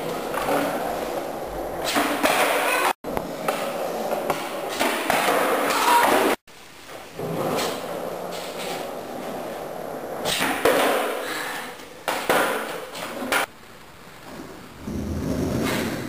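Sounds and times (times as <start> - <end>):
skateboard wheels rolling: 0.0 - 13.5, 14.2 - 16.0
skateboard clattering on concrete: 1.8 - 6.4, 7.2 - 13.5.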